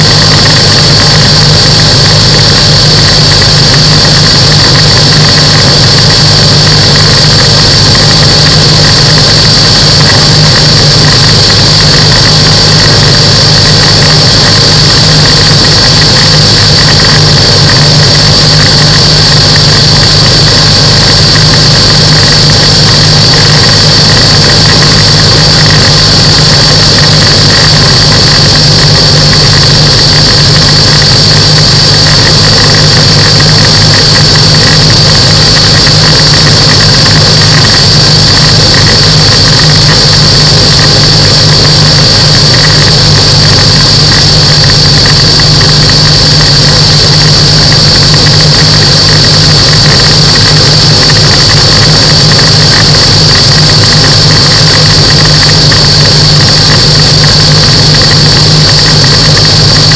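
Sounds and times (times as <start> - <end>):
light aircraft engine and propeller: 0.0 - 59.9.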